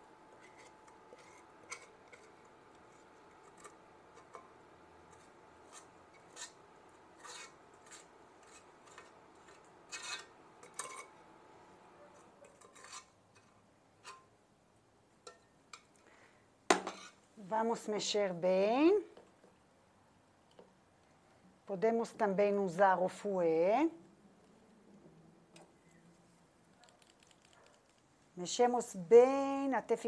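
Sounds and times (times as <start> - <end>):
metal spoon scraping a pot: 0.3 - 11.2, 12.4 - 14.3, 16.8 - 17.2.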